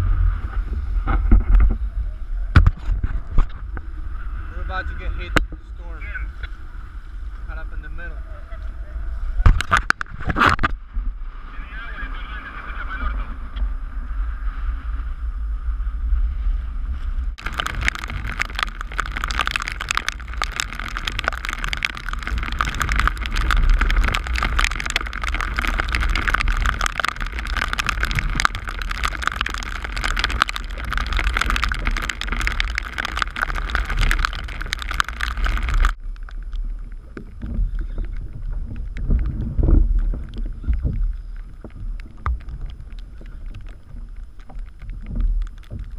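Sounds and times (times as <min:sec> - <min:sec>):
low rumble: 0:00.0 - 0:45.9
wind buffeting microphone: 0:00.0 - 0:45.9
heavy rain hissing on sea: 0:10.9 - 0:45.9.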